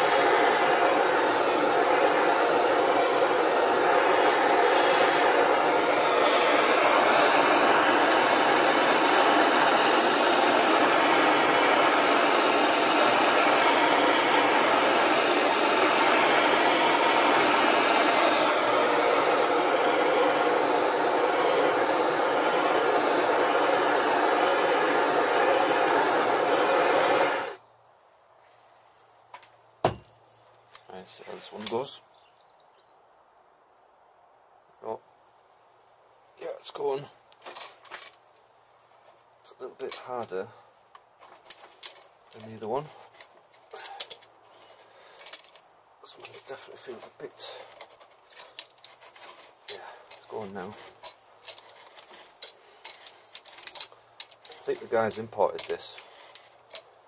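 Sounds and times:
blowtorch flame hissing: 0.0 - 27.6, 46.1 - 56.7.

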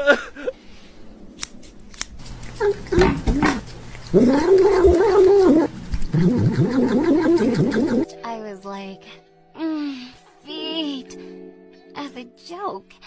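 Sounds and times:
scissors snipping: 1.3 - 6.2
cat calling: 2.6 - 8.1.

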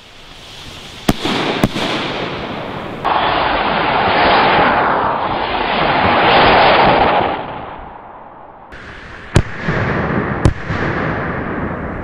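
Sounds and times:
steady rushing hiss: 0.0 - 4.3, 8.7 - 10.5
rocket whoosh: 0.0 - 12.0
sharp salute bangs: 1.0 - 3.1.

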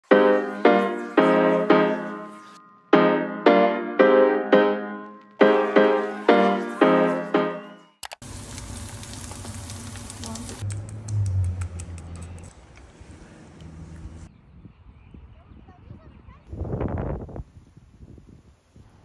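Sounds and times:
solo piano chords: 0.0 - 8.0.

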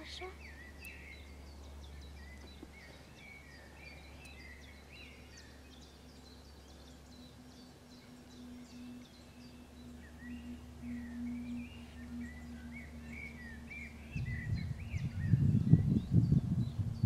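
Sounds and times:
faint low hum: 0.0 - 17.0
low background rumble: 0.0 - 17.0
songbirds chirping: 0.0 - 17.0.

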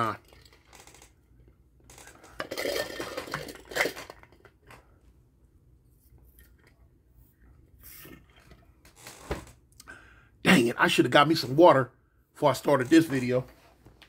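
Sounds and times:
slurp through a straw: 7.8 - 8.7.

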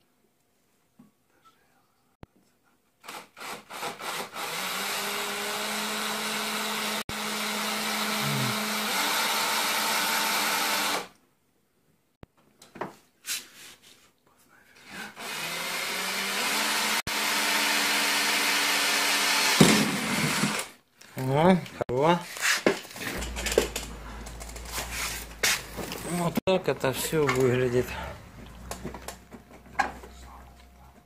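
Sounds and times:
cordless drill drilling metal: 3.0 - 11.1, 15.2 - 20.8.

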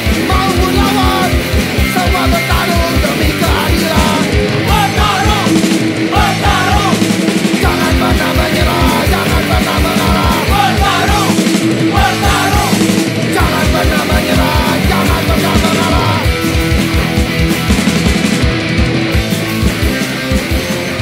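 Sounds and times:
rock music with vocals: 0.0 - 21.0.

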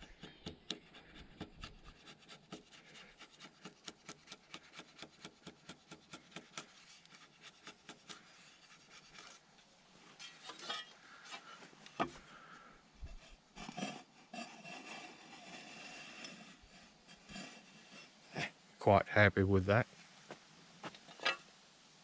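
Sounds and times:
hand tool scraping on wood: 0.0 - 9.4, 13.0 - 18.6.

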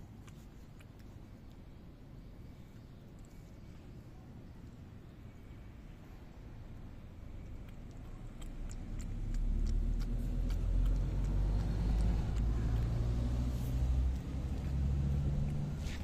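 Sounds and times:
cat lapping milk: 5.6 - 16.0
vehicle engine running: 8.8 - 16.0.

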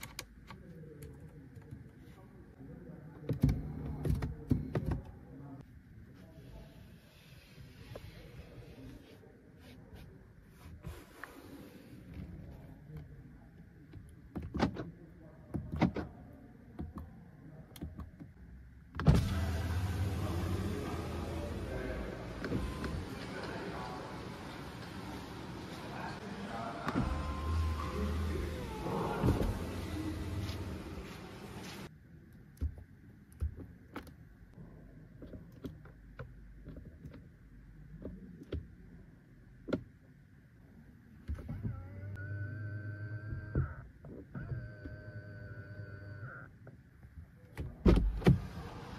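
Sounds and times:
electric window motor running: 26.9 - 31.6.

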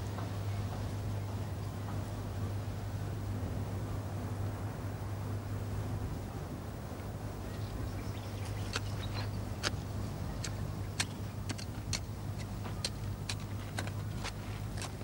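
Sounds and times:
trowel scraping soil: 10.4 - 15.0.

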